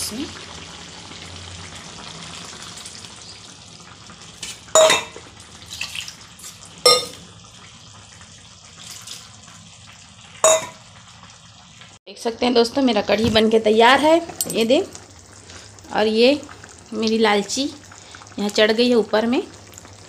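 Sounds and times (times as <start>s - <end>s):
curry bubbling and sizzling: 0.0s - 12.0s, 12.7s - 20.0s
metal ladle clanking on pan: 4.8s - 5.3s, 6.9s - 7.2s, 10.4s - 10.8s.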